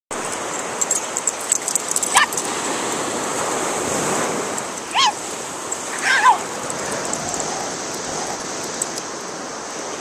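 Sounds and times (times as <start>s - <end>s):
surf on a beach: 0.1s - 10.0s
dog yipping: 2.1s - 2.4s, 4.9s - 5.2s, 5.9s - 6.5s.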